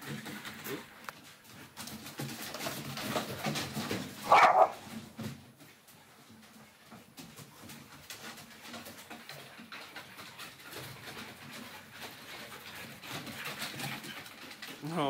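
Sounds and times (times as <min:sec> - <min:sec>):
dogs grumbling: 0:04.2 - 0:04.9
dog claws ticking on boards: 0:06.8 - 0:14.8.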